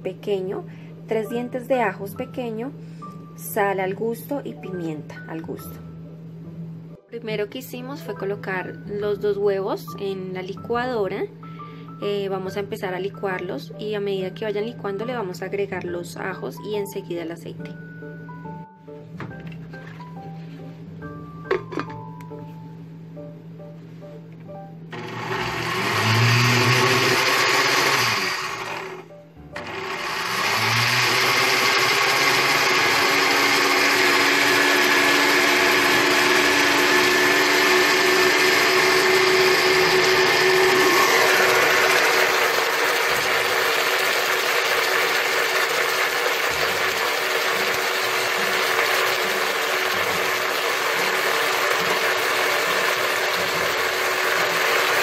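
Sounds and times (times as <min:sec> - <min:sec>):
blender motor whining: 0:24.9 - 0:55.0.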